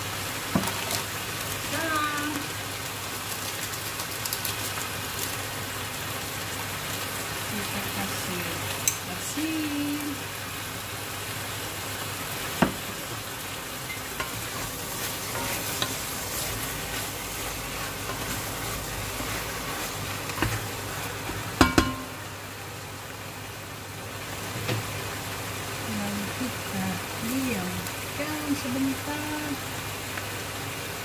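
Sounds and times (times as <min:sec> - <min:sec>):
meat sizzling in a pot: 0:00.0 - 0:31.0
wooden spatula knocking on pot: 0:21.6 - 0:22.2.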